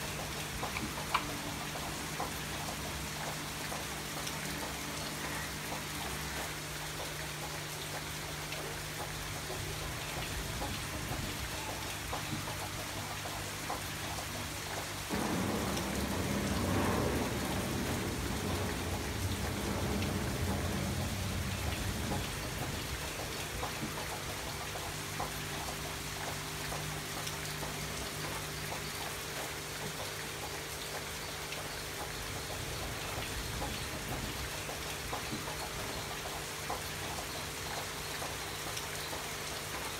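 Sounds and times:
rain pattering: 0:00.0 - 0:39.9
deep rumble: 0:15.1 - 0:22.9.

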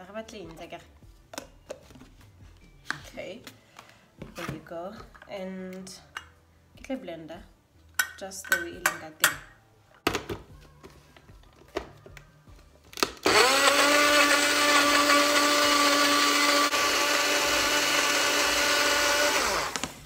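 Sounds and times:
blender motor whine: 0:13.2 - 0:20.0.

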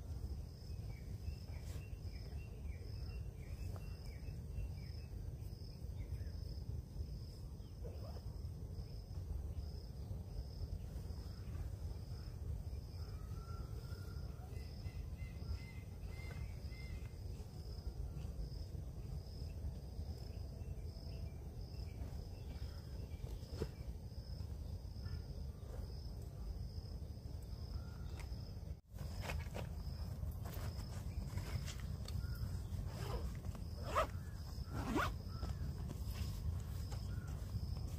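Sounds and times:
insect chirping: 0:00.0 - 0:37.9.

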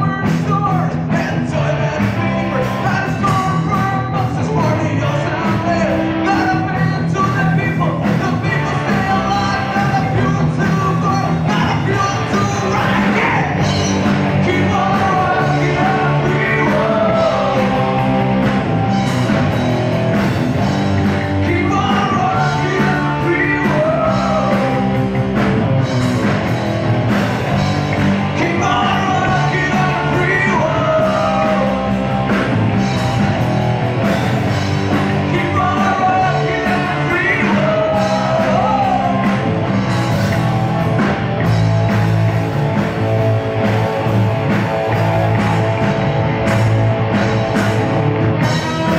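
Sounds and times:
lead vocal singing: 0:00.0 - 0:19.5, 0:21.0 - 0:25.5, 0:28.0 - 0:33.4, 0:34.1 - 0:40.8
held bass notes: 0:00.0 - 0:48.9
rock band playing: 0:00.0 - 0:48.9
steady drum beat: 0:00.0 - 0:48.9.

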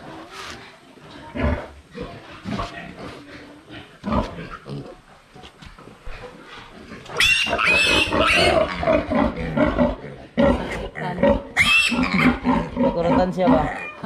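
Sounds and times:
piglet squealing: 0:07.2 - 0:08.8, 0:11.6 - 0:12.4, 0:13.6 - 0:14.0.

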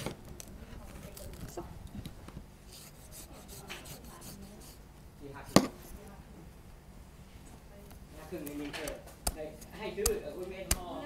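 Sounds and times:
knife cutting and scraping husk: 0:02.7 - 0:04.8.

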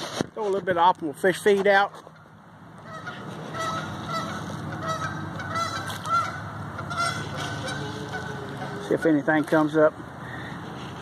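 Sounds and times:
geese honking: 0:02.2 - 0:09.7.

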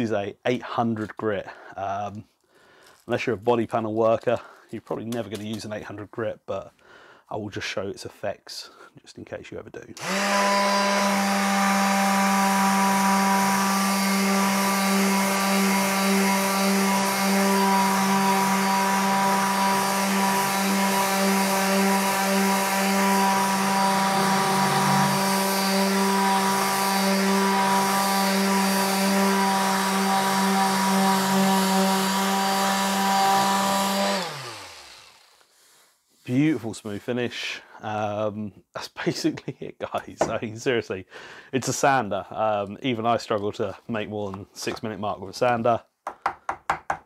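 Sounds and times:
detail sander running: 0:10.0 - 0:35.5.

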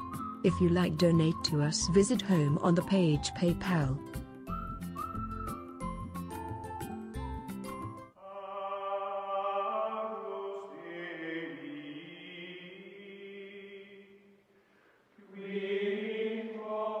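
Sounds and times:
voices singing slow chant: 0:08.2 - 0:14.4, 0:15.2 - 0:17.0.

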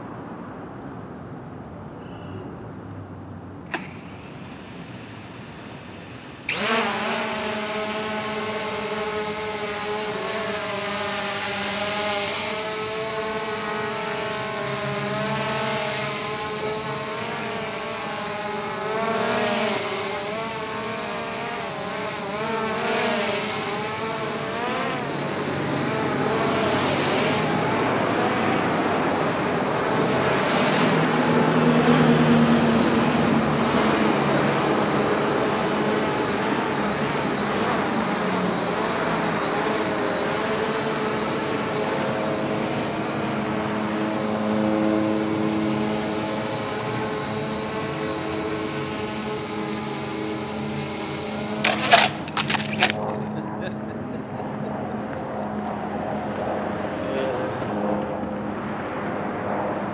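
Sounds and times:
street traffic: 0:00.0 - 0:06.9, 0:23.9 - 0:40.3, 0:41.2 - 0:59.9
drone rotors whining: 0:03.6 - 0:55.0.

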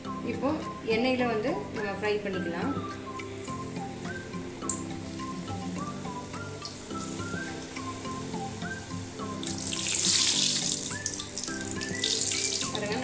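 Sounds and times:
background music with melody: 0:00.0 - 0:13.0
oil bubbling and sizzling: 0:02.9 - 0:13.0.

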